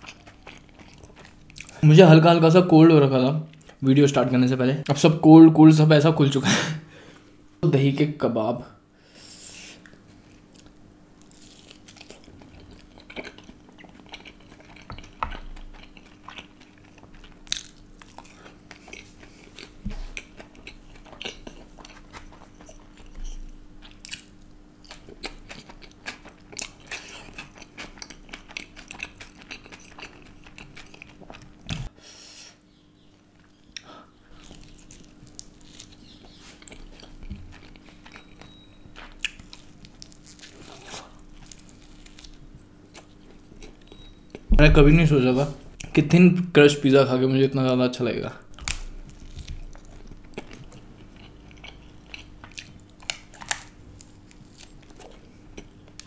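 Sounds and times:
person chewing food: 0.0s - 1.8s, 9.8s - 31.9s, 33.3s - 44.5s, 48.5s - 56.0s
faint steady hum: 0.0s - 56.0s.

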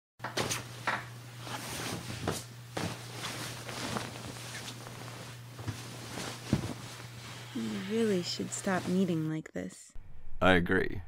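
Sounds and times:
soft knocks and rustles: 0.3s - 7.2s
steady low hum: 0.4s - 11.0s.

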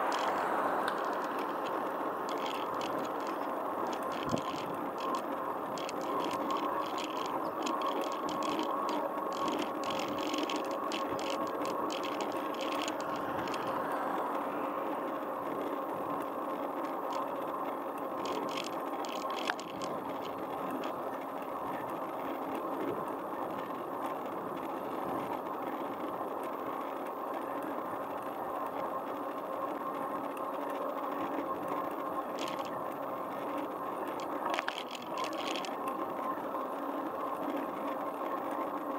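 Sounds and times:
bicycle tyres rolling on road: 0.0s - 38.9s
faint steady hum: 0.0s - 38.9s.

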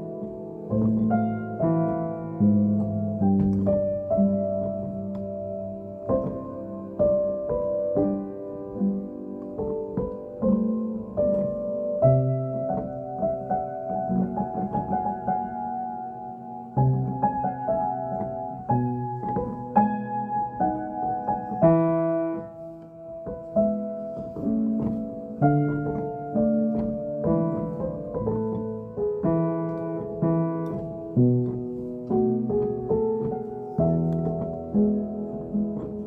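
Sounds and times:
slow piano piece: 0.0s - 36.0s.

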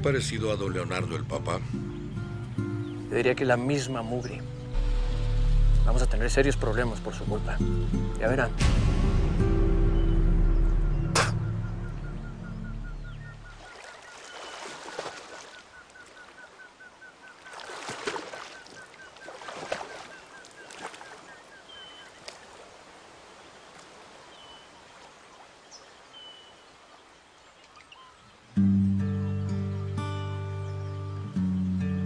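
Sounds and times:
low music: 0.0s - 13.4s, 28.6s - 32.0s
whistled bird calls: 9.9s - 17.6s, 18.4s - 22.3s
rustling through undergrowth: 13.6s - 16.6s.

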